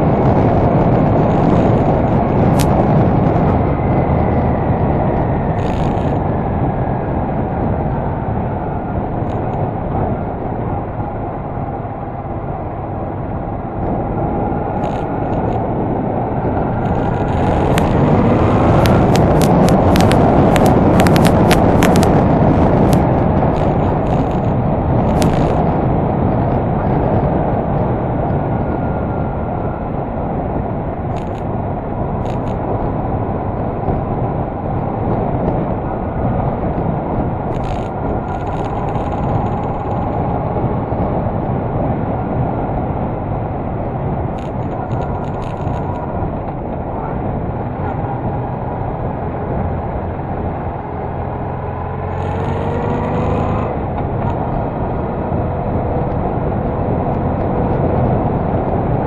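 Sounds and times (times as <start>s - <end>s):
motorcycle engine running: 0.0s - 8.5s, 9.1s - 27.2s, 34.9s - 41.1s, 44.3s - 58.7s
wind rushing over microphone: 0.0s - 59.0s
sharp clicks: 14.8s - 15.6s, 16.8s - 25.6s, 31.1s - 31.5s, 32.2s - 32.6s, 37.5s - 40.2s, 44.4s - 46.0s.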